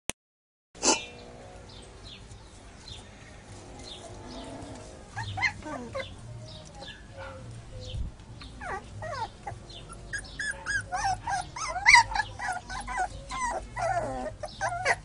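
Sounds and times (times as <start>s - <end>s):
puppies yipping and whimpering: 4.4s - 7.5s, 8.4s - 15.0s
puppy yelp: 5.2s - 6.2s, 8.6s - 15.0s.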